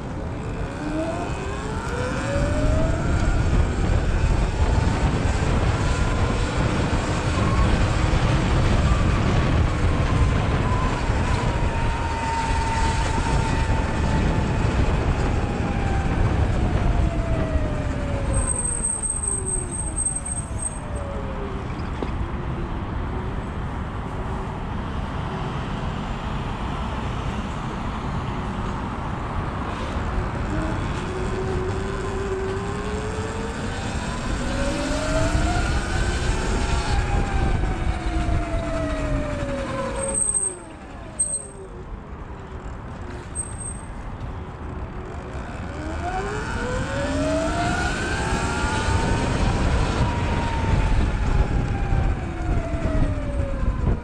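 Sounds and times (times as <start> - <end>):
wind and tyre rumble: 0.0 - 54.0
electric motor whine: 0.1 - 8.6, 45.0 - 52.9.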